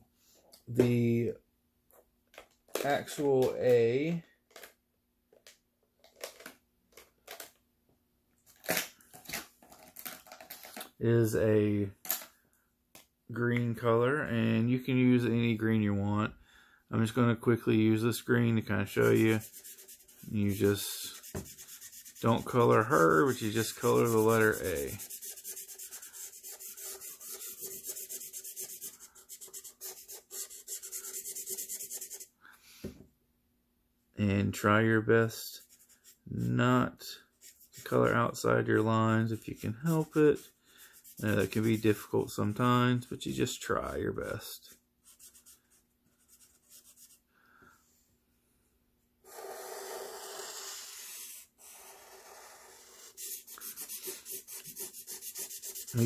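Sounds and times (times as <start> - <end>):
marker scribbling on paper: 18.8 - 32.3, 37.4 - 42.1, 49.3 - 56.0.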